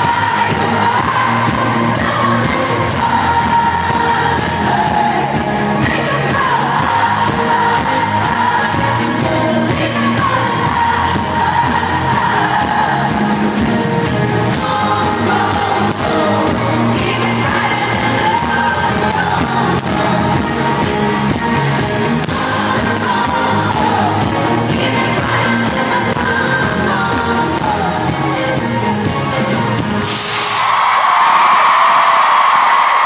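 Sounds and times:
woman singing: 0.0 - 13.7, 14.5 - 20.8, 22.2 - 28.6
live pop band: 0.0 - 33.0.

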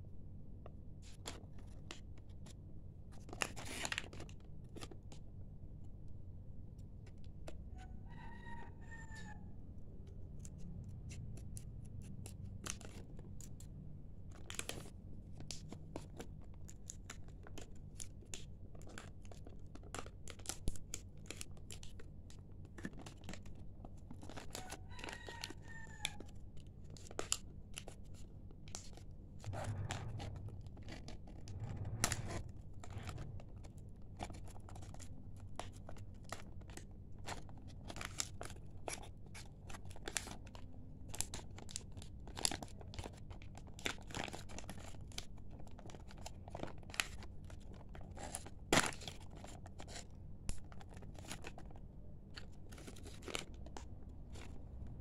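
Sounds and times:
plastic packaging crinkling: 14.3 - 55.0.

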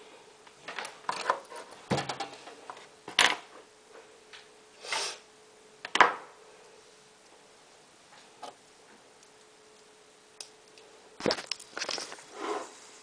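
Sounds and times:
short scrape: 12.2 - 12.9.

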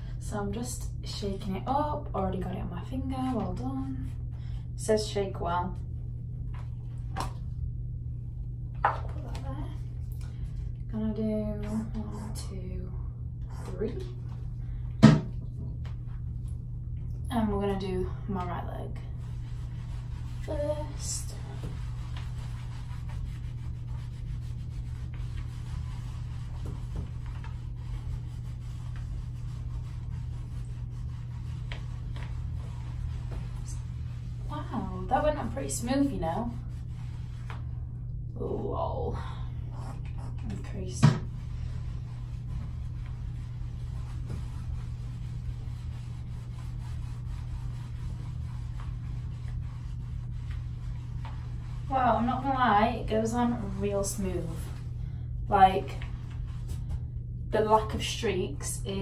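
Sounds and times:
low hum: 0.0 - 59.0
mitt rubbing on skin: 18.4 - 37.8, 39.7 - 54.9, 55.6 - 58.2.

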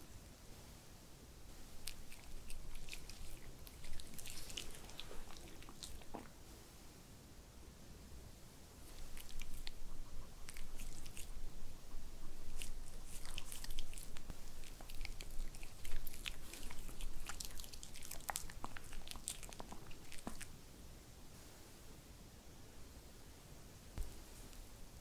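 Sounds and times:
dog chewing a treat: 1.8 - 6.3, 8.9 - 11.4, 12.2 - 20.5.

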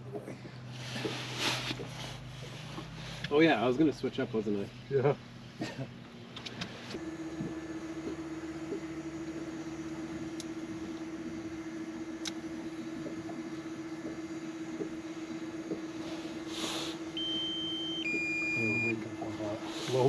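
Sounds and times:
drone propellers humming: 0.0 - 20.0
electronic beep: 17.2 - 19.0.

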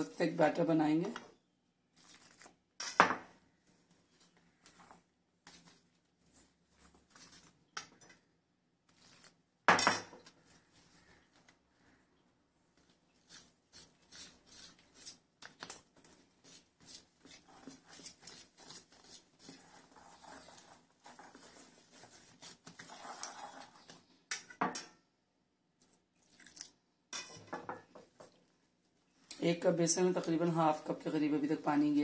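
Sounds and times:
wire whisk scraping a steel bowl: 16.9 - 24.0.

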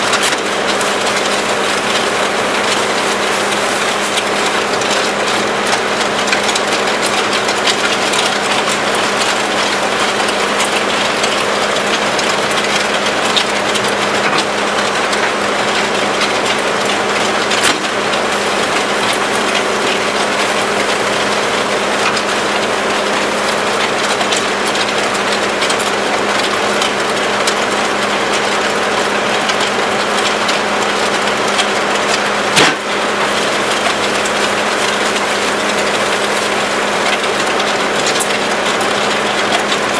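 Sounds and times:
auger churning concrete: 0.0 - 39.9
loader engine running: 0.0 - 39.9
gravel grinding against steel: 0.1 - 6.6.

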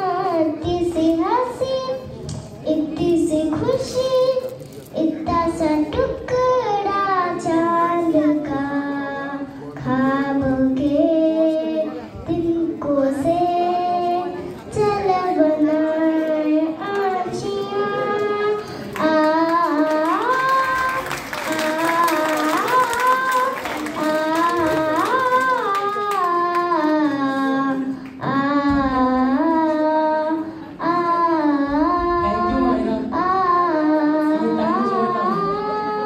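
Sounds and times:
girl singing: 0.0 - 36.0.

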